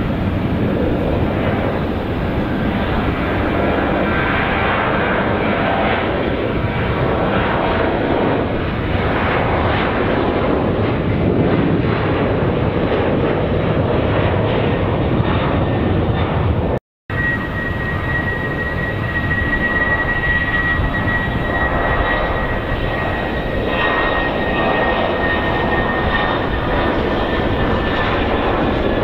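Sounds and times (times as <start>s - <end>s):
jet airliner engine rush: 0.0s - 29.0s.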